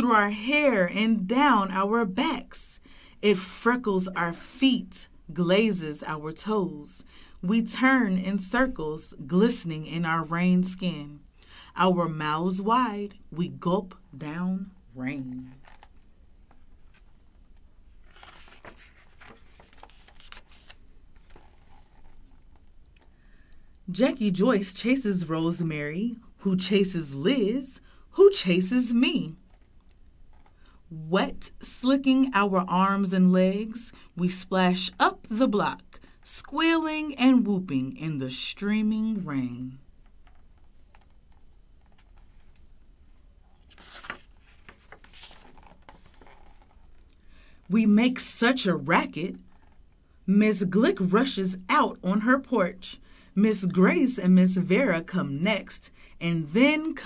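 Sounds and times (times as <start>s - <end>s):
book page rustling: 15.4s - 23.0s, 40.2s - 42.7s, 43.5s - 47.1s.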